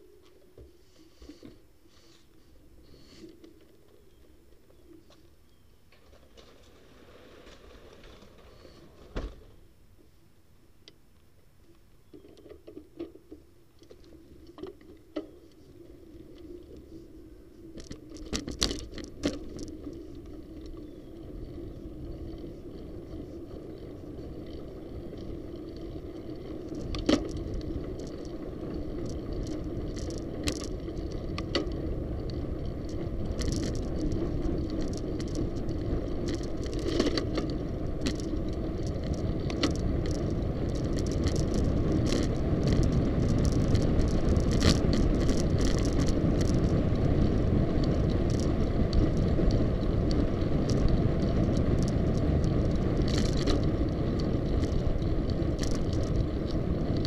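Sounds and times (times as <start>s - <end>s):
bicycle tyres humming: 0.0s - 9.8s, 11.8s - 57.0s
bike rattling over bumps: 6.0s - 9.7s, 17.6s - 57.0s.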